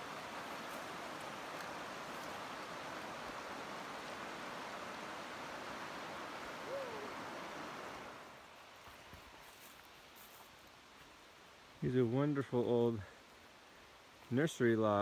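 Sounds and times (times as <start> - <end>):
water rushing over rocks: 0.0 - 8.4
call rising and falling in pitch: 6.7 - 7.2.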